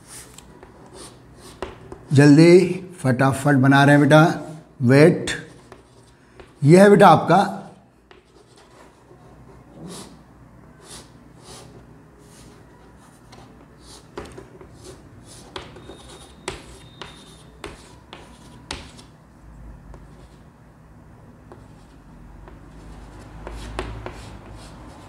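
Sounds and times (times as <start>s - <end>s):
chalk strokes and taps on chalkboard: 0.0s - 2.1s, 5.4s - 6.6s, 8.0s - 10.2s, 10.8s - 19.1s, 21.4s - 25.0s.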